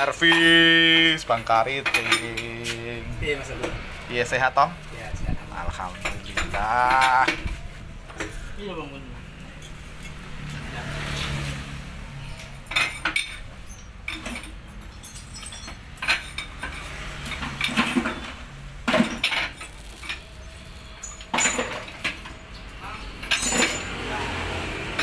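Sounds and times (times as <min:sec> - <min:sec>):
metal tools clinking and knocking: 0:00.0 - 0:02.9, 0:05.7 - 0:08.5, 0:12.4 - 0:25.0.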